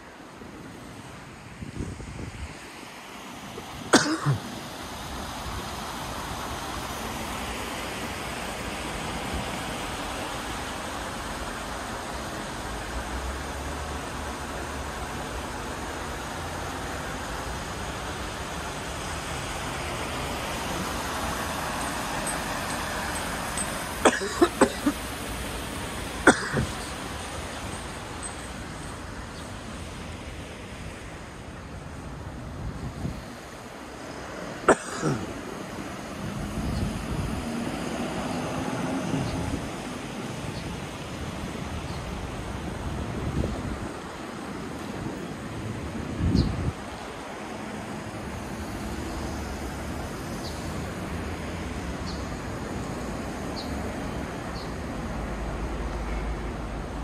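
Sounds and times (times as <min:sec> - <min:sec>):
road traffic hiss: 0:00.0 - 0:57.0
street noise: 0:00.0 - 0:57.0
person coughing: 0:03.9 - 0:04.5, 0:24.0 - 0:25.0, 0:26.3 - 0:26.8, 0:34.7 - 0:35.3.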